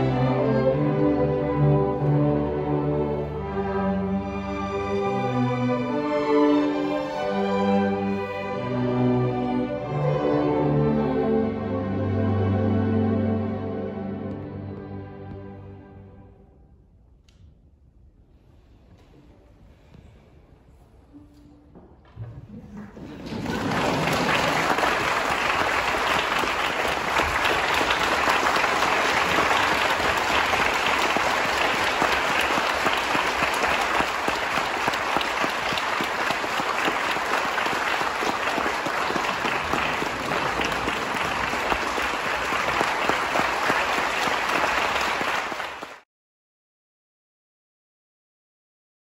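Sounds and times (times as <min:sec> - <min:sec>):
audience applauding: 0:22.9 - 0:46.0.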